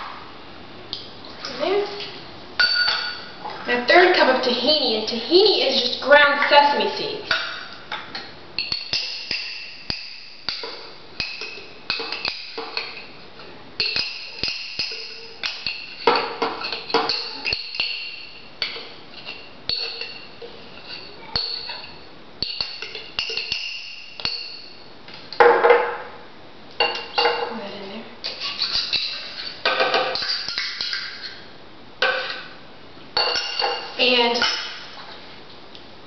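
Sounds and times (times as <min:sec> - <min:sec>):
spoon tapping metal cup: 0:13.8 - 0:24.8.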